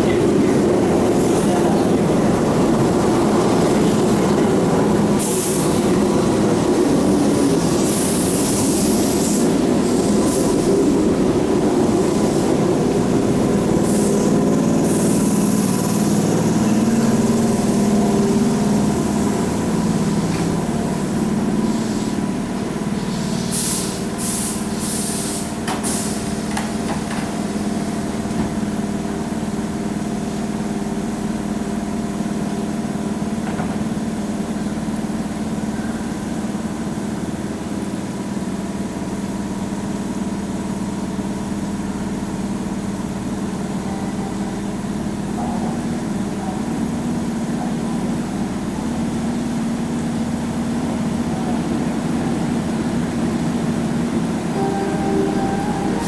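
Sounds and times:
electric train humming: 0.0 - 24.8, 39.4 - 56.0.

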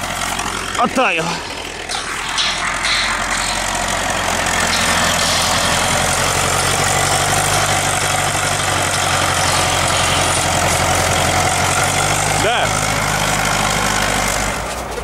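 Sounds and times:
diesel engine running: 0.0 - 15.0.

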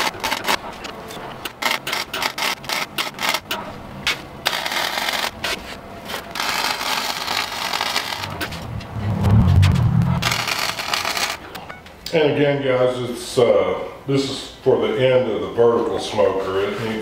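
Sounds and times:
arc welding crackling: 6.4 - 8.6, 10.2 - 11.4.

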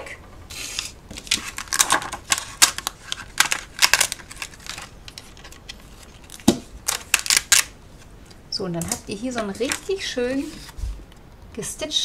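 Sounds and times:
card stock rustling and crackling: 0.8 - 8.1.

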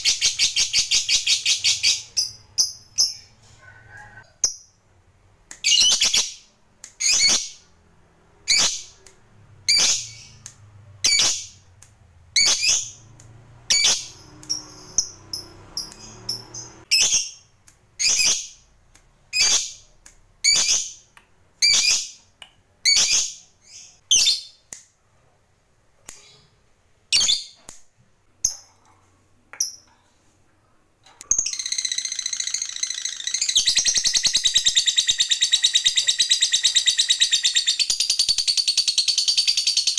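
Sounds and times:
bird chattering trill: 31.3 - 39.9.

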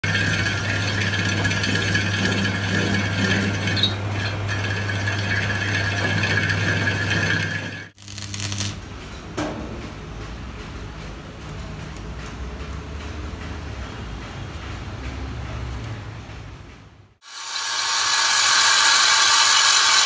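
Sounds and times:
metal lathe running: 0.0 - 8.0, 17.2 - 20.0
arc welding crackling hiss: 7.9 - 8.8, 17.2 - 20.0.

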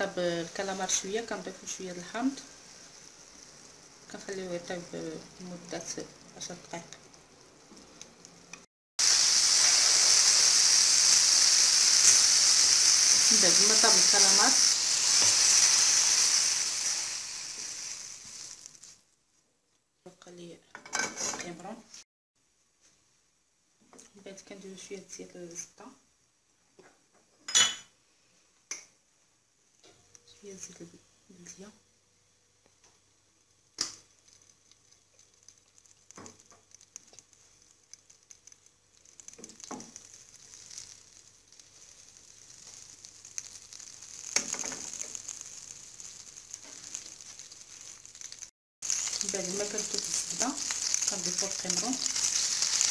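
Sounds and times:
food sizzling: 0.0 - 19.1, 29.7 - 52.9
person speaking: 13.2 - 14.7, 49.2 - 52.2.

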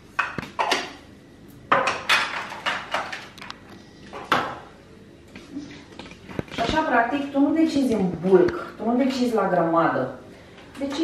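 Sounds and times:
hard items clacking on countertop: 1.7 - 3.5.

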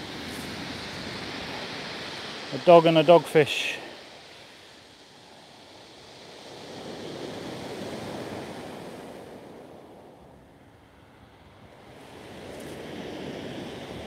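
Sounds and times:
surf breaking on shingle beach: 0.0 - 9.8.

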